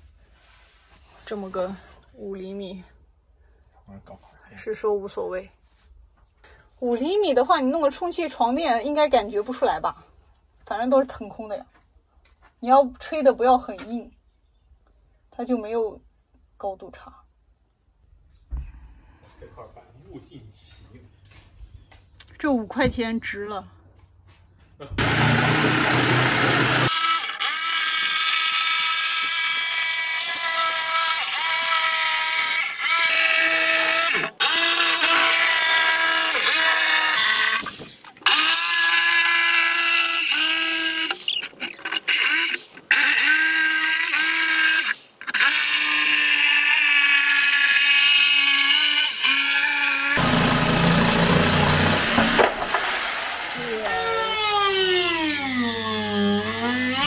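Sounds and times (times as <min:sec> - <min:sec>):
power tool motor whine: 0:25.0 - 0:29.4, 0:30.0 - 0:57.0.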